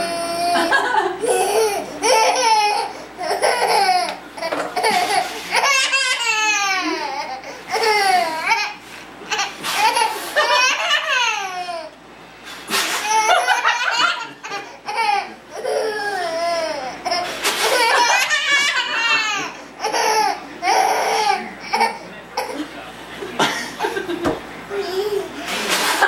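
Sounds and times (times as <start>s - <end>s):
toddler laughing: 0.0s - 11.9s, 12.9s - 22.6s, 24.7s - 26.0s
adults laughing: 0.5s - 1.6s, 9.9s - 11.4s, 13.1s - 15.4s, 17.5s - 20.2s, 22.6s - 24.4s, 25.4s - 26.0s.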